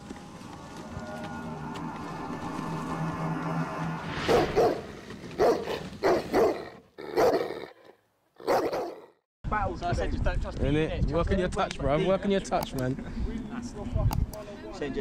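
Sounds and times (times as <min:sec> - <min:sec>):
intro music: 0:00.0 - 0:05.4
dog barking: 0:05.4 - 0:07.7, 0:08.4 - 0:09.1.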